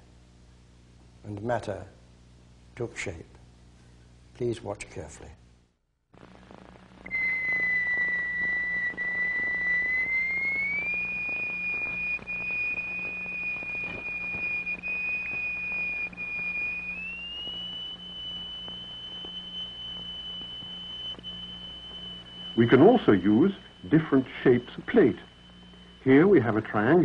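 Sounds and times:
low hum: 5.4s - 27.0s
pure electronic tone: 6.2s - 27.0s.

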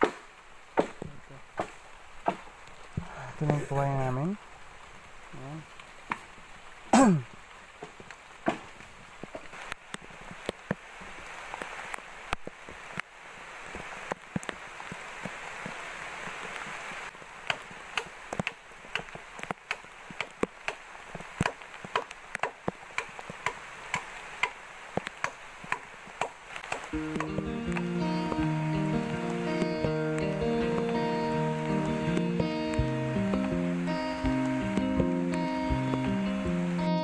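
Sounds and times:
blade chopping bamboo: 0.0s - 2.5s, 7.8s - 9.4s, 17.4s - 27.8s
steady hiss: 0.0s - 37.0s.

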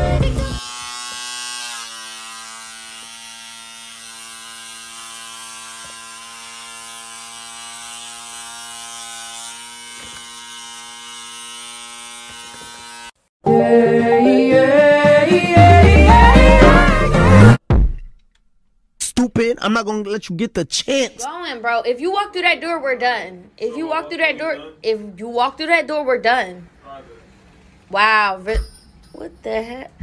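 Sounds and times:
electric hair trimmer buzzing: 0.0s - 13.2s
loud music: 13.5s - 17.9s.

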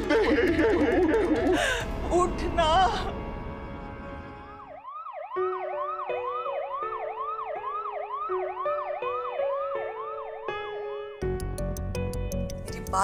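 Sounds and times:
ambulance siren yelping: 4.4s - 11.2s.

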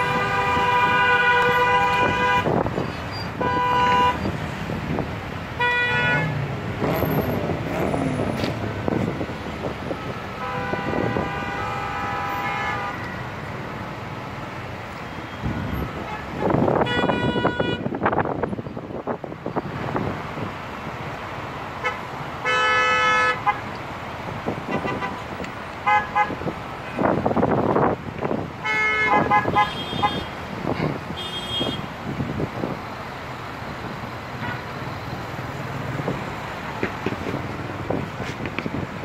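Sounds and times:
car horns honking: 0.0s - 4.4s, 5.5s - 13.3s, 15.2s - 18.0s, 21.8s - 23.7s, 24.7s - 27.1s, 28.6s - 32.0s, 34.3s - 34.8s
traffic noise: 0.0s - 39.0s.

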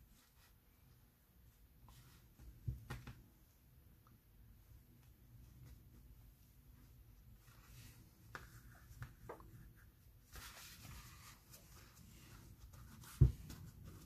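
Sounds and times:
faint paper rustling: 5.0s - 14.0s.

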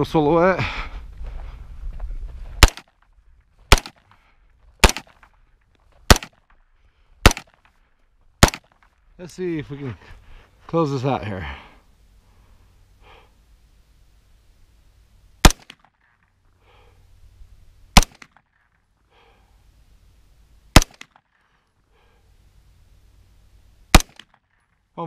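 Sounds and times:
pistol shots: 2.6s - 2.9s, 3.7s - 4.0s, 4.8s - 5.3s, 6.1s - 6.4s, 7.2s - 7.6s, 8.4s - 8.8s, 15.4s - 16.0s, 18.0s - 18.4s, 20.7s - 21.2s, 23.9s - 24.4s.

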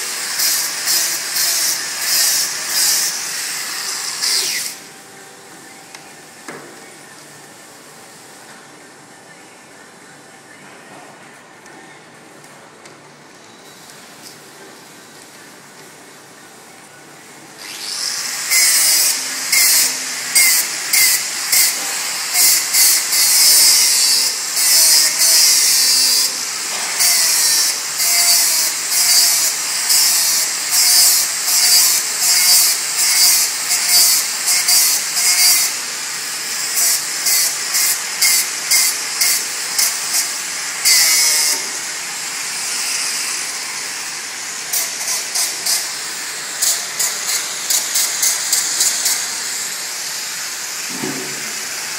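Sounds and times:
welding arc hissing: 0.0s - 4.9s, 17.7s - 51.9s
welding crackling bursts: 18.5s - 41.9s, 44.6s - 50.8s.

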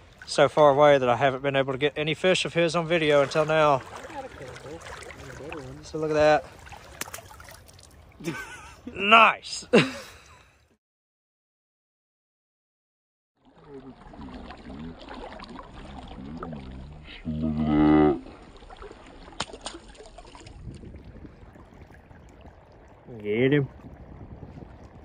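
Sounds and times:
outdoor background noise: 0.0s - 10.7s.

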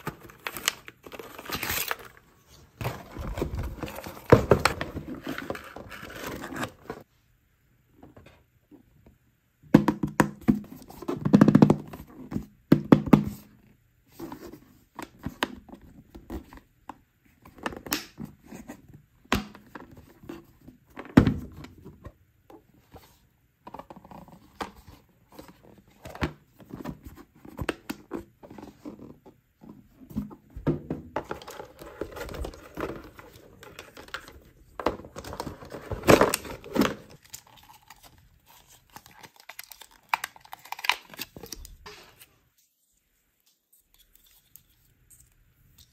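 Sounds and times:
plastic wrapping crinkling and tearing: 35.2s - 42.0s.

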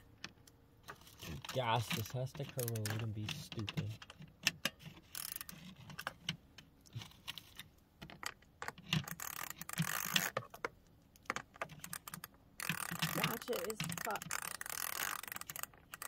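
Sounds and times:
ratchet wrench clicking: 5.1s - 5.7s, 9.0s - 10.4s, 11.8s - 16.0s.

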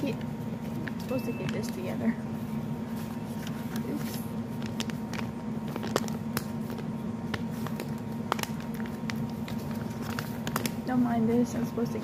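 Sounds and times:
steady low hum: 0.0s - 12.0s
papers being shuffled: 2.8s - 10.9s.

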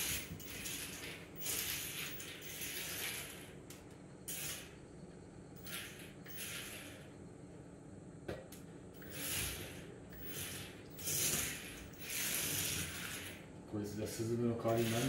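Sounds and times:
toy car motor whirring: 0.0s - 4.8s, 5.6s - 7.1s, 9.0s - 13.5s, 14.6s - 15.0s.

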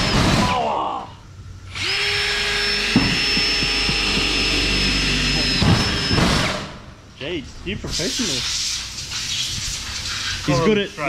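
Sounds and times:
cordless drill motor whining: 1.7s - 6.2s.

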